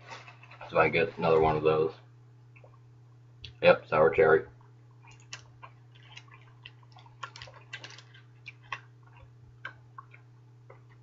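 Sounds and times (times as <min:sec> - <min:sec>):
steady low hum: 0:00.0 - 0:11.0
mouth chewing bubble gum: 0:05.0 - 0:11.0.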